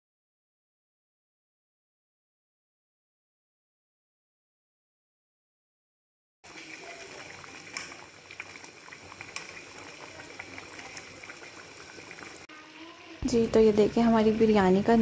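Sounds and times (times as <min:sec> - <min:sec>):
rice boiling in a pot: 0:06.4 - 0:15.0.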